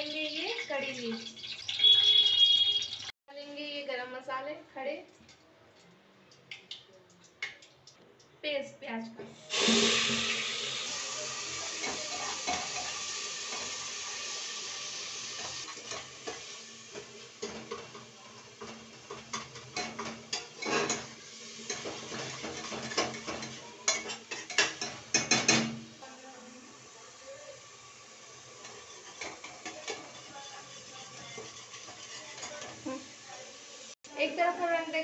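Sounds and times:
onion paste sizzling in oil: 0:00.0 - 0:03.1, 0:09.3 - 0:35.0
metal spoon scraping pot: 0:28.6 - 0:32.8.

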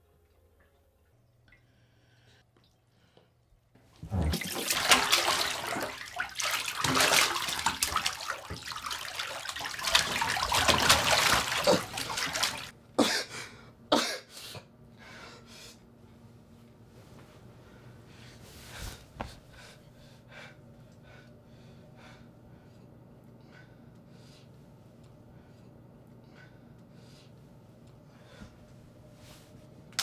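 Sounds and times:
bathtub water splashing: 0:03.8 - 0:12.7.

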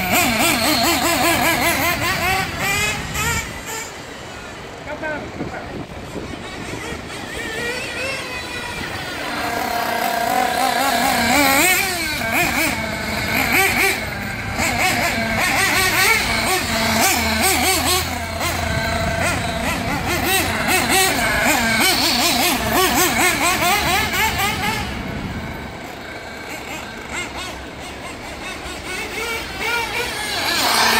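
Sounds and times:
nitro engine revving: 0:00.0 - 0:30.9.

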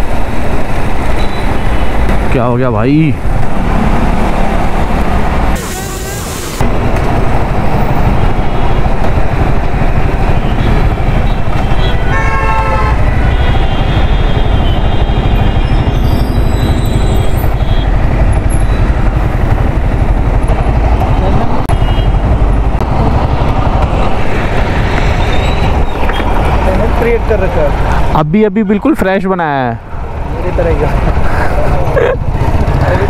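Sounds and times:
wind rush: 0:00.0 - 0:28.2
motorcycle road noise: 0:00.0 - 0:33.0
vehicle horn: 0:05.6 - 0:06.5, 0:10.4 - 0:18.0, 0:21.7 - 0:22.2.

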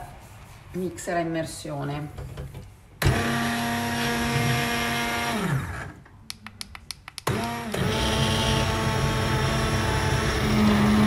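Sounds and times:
immersion blender motor: 0:03.0 - 0:06.0, 0:07.3 - 0:11.0.

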